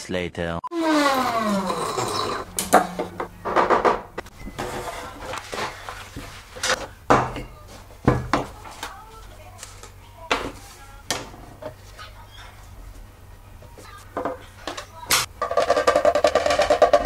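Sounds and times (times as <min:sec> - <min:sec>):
plastic parts knocking on countertop: 0:08.0 - 0:08.8, 0:15.4 - 0:17.0.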